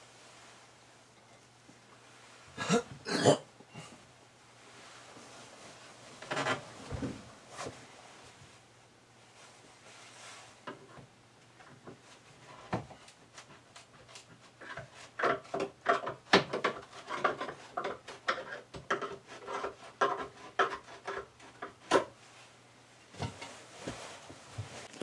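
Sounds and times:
wood creaking and scraping: 6.2s - 7.8s.

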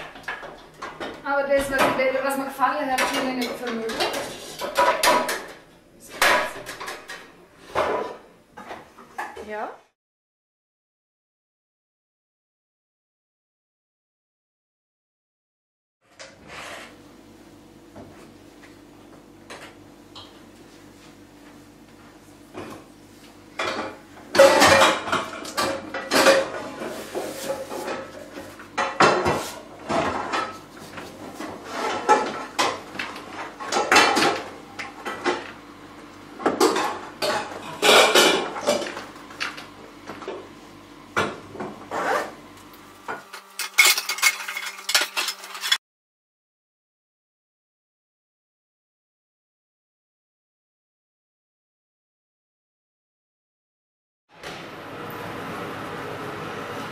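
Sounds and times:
metal pots and pans clattering: 2.9s - 5.6s, 6.2s - 9.4s, 23.6s - 30.6s, 31.4s - 35.5s, 36.5s - 39.0s, 43.2s - 45.8s.

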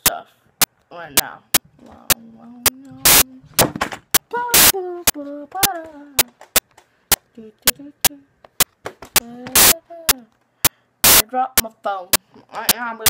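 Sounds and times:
sharp clicks: 0.6s - 3.2s, 4.1s - 12.8s
child's voice: 11.3s - 13.0s.

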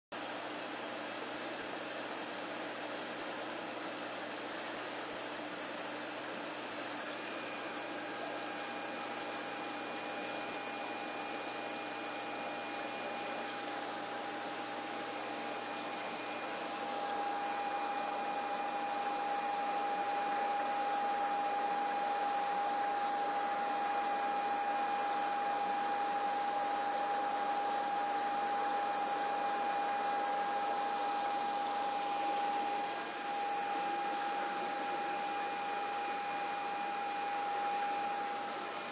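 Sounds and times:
aquarium pumps humming: 0.1s - 38.9s
steady whine: 27.5s - 38.9s.

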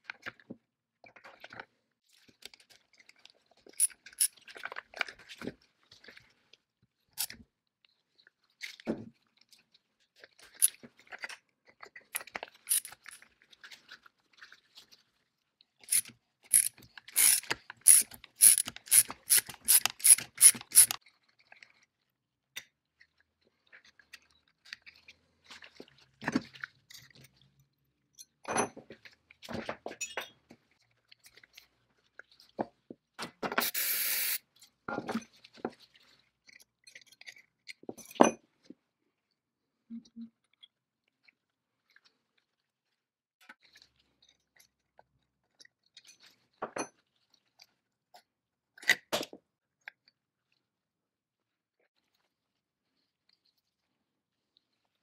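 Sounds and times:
tools clicking on metal parts: 12.2s - 13.2s, 15.9s - 21.0s.

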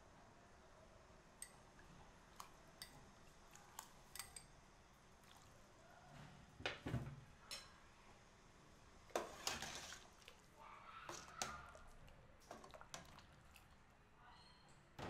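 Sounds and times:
spoon clicking on ceramic bowl: 3.8s - 4.5s.

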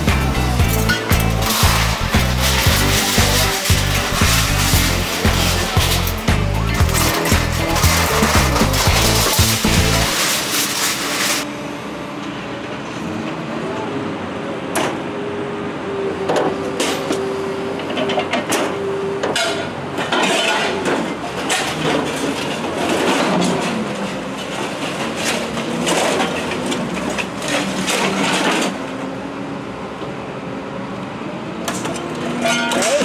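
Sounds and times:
scrap metal clanking and crashing: 0.0s - 11.5s, 19.3s - 29.0s, 31.7s - 33.0s
steady whine: 0.0s - 11.6s
material handler engine running: 0.0s - 13.1s.

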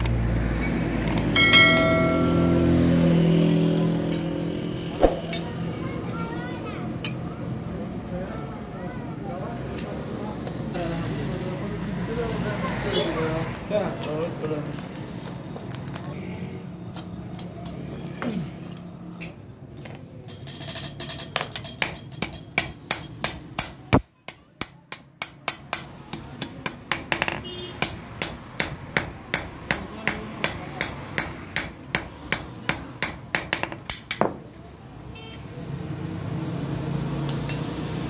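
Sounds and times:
hammer ringing on anvil: 1.4s - 2.7s.

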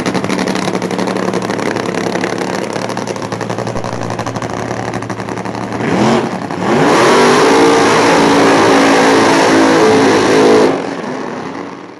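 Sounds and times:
race car engine revving: 0.0s - 11.8s.

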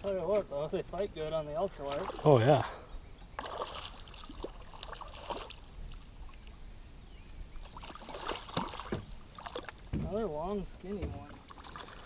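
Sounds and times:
fish splashing at surface: 3.4s - 5.7s, 7.6s - 10.0s.

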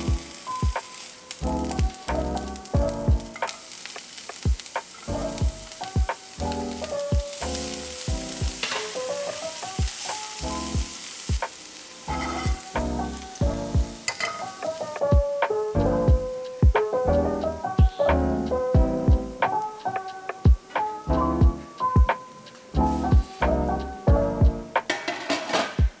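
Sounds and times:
background music with low beat: 0.0s - 3.4s, 4.3s - 7.3s, 12.4s - 14.0s, 15.0s - 22.2s, 22.8s - 26.0s
vegetables sizzling in a pan: 0.0s - 26.0s
spatula stirring in a pan: 3.3s - 13.4s, 14.0s - 15.0s.

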